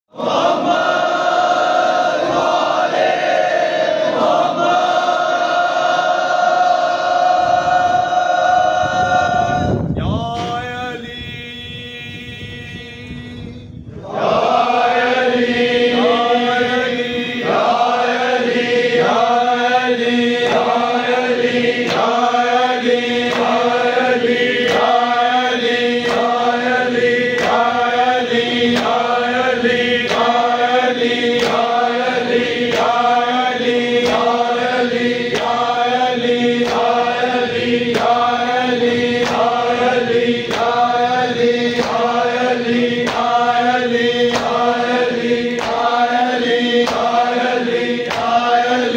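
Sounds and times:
steady held drone: 0.2 - 48.9
voices chanting a phrase: 13.9 - 48.9.

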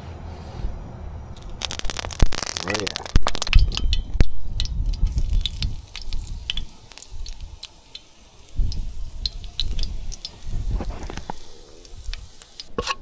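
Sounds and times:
low rumble: 0.0 - 7.6
fish sizzling in a pan: 1.4 - 13.0.

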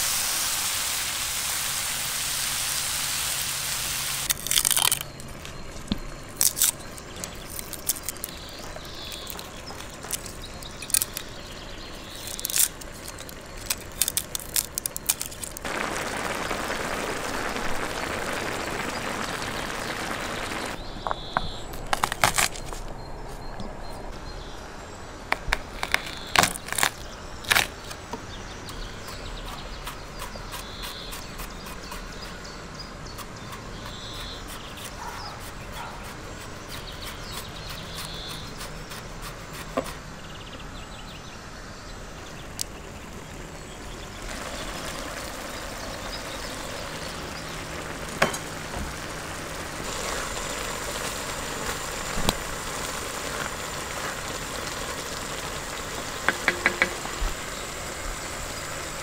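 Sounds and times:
food sizzling in a wok: 0.0 - 4.3, 15.6 - 20.8, 43.1 - 59.0
gas burner hissing: 0.0 - 4.4, 8.3 - 20.8, 42.0 - 59.0
spatula knocking against pan: 56.3 - 57.0.

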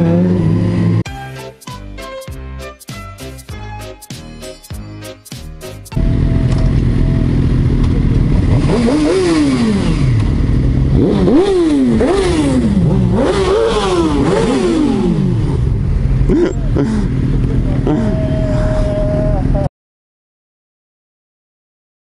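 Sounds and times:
motorcycle throttle revs: 0.0 - 1.0, 7.2 - 19.5
motorcycle engines idling: 6.0 - 19.7.

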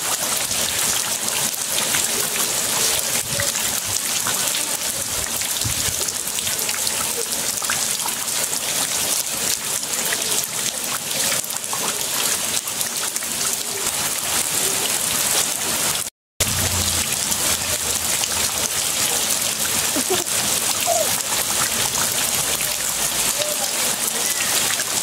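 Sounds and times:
rain splashing on concrete and water: 0.0 - 25.0.

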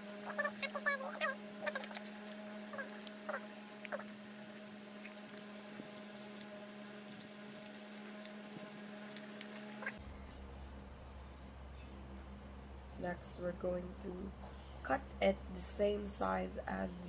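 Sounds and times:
steady low hum: 0.0 - 17.0
paper rustling and crinkling: 4.5 - 10.0.

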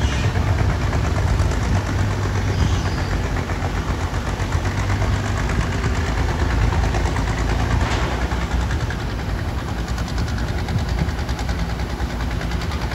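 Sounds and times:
fast fine ticking: 0.0 - 12.9
motor running with low rumble: 0.0 - 12.9.

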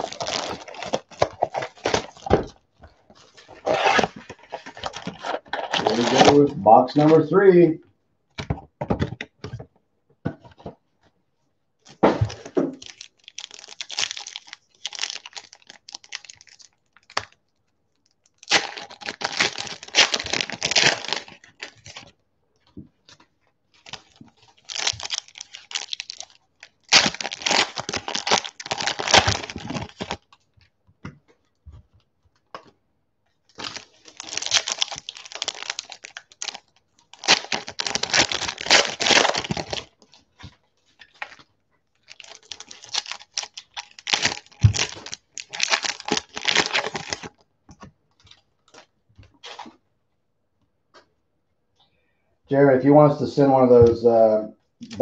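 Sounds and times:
foil packs tearing and crinkling: 0.0 - 2.5, 3.4 - 7.3, 12.2 - 17.4, 18.3 - 22.1, 23.8 - 30.2, 33.5 - 40.1, 42.0 - 47.3.

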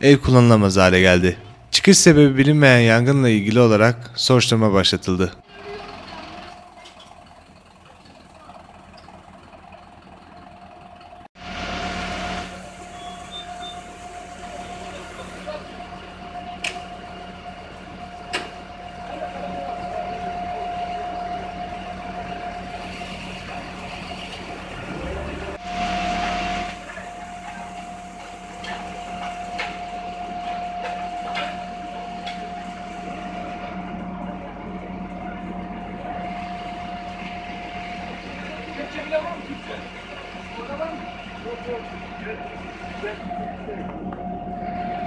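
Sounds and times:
fire truck engine and pump: 4.9 - 45.0
high whine: 10.9 - 45.0.

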